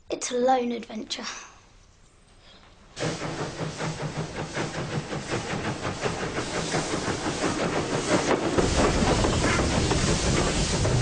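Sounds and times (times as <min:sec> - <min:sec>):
steam locomotive hissing: 0:02.9 - 0:11.0.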